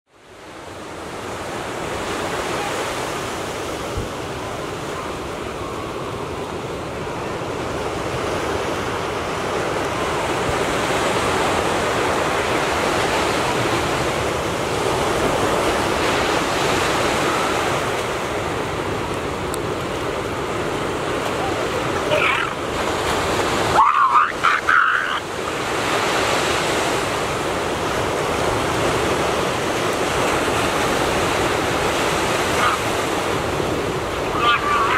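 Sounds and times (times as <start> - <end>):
water surging against rocky shore: 0.1 - 34.9
short wavering animal call: 22.1 - 22.6.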